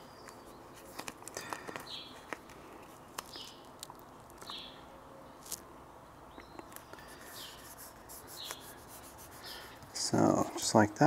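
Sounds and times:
fingertips rubbing vinyl: 7.1 - 9.8.

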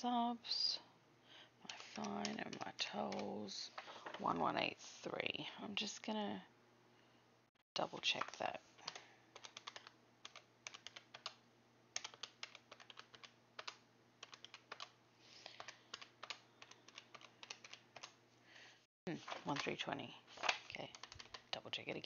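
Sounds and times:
calculator keys clicking: 1.7 - 3.3, 8.2 - 11.4, 12.0 - 14.9, 15.5 - 18.1, 20.8 - 21.5.

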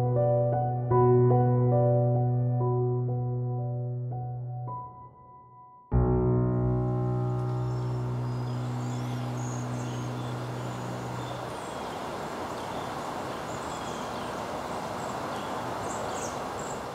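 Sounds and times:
held piano notes: 5.9 - 11.8
outdoor background rush: 7.5 - 16.9.

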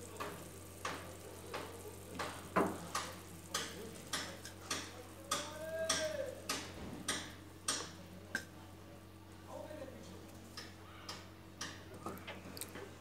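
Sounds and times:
clicks and taps on steel plate and pan: 0.1 - 8.5.

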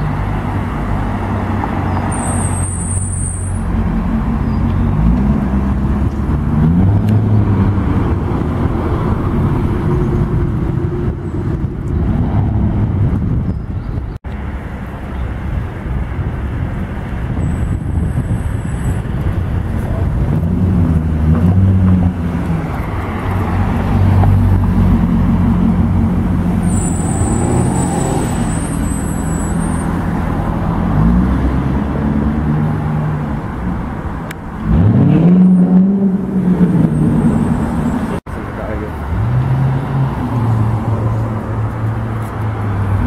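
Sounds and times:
car engine accelerating: 30.1 - 43.0.

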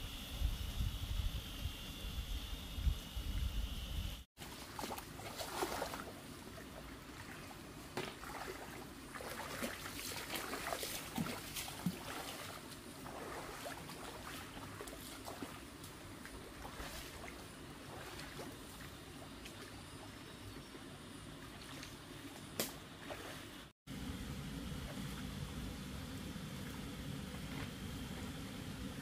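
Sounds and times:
small splashes: 4.4 - 20.2, 21.4 - 23.7
water sloshing and trickling: 4.4 - 23.7.

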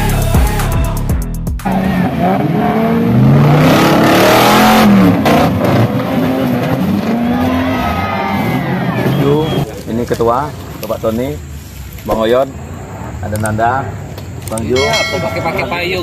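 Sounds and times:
buggy engine revving hard: 1.6 - 9.7.

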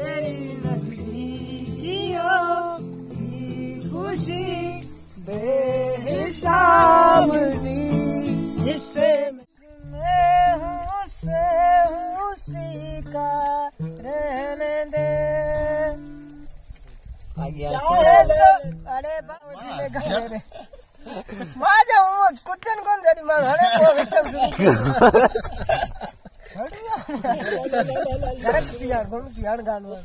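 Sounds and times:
men singing: 0.0 - 16.3, 17.7 - 20.3
acoustic guitar strumming chords: 0.0 - 16.4.

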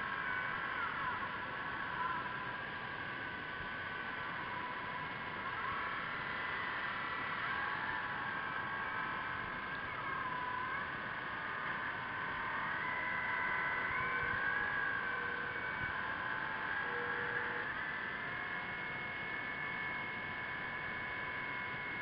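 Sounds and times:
electric motors whining underwater: 0.3 - 22.0.

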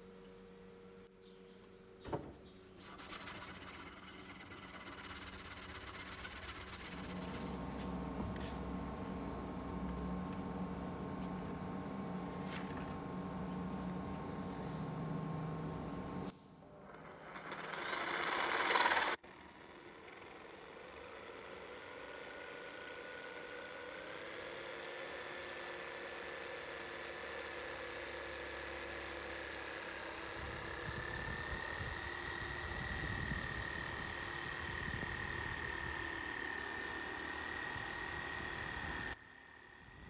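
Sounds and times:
saw blade cutting wood: 2.8 - 8.9, 16.6 - 30.8
jigsaw motor whine: 3.2 - 15.6, 16.6 - 40.0.

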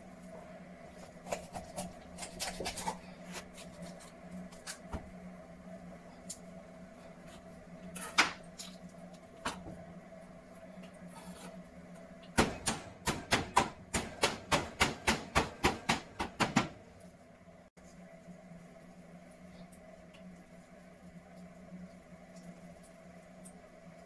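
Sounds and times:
knife chopping on wooden board: 12.4 - 16.8.

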